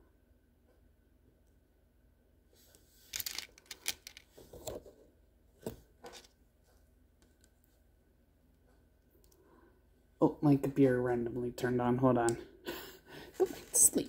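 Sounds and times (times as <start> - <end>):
packaging rustling: 3.1 - 4.7.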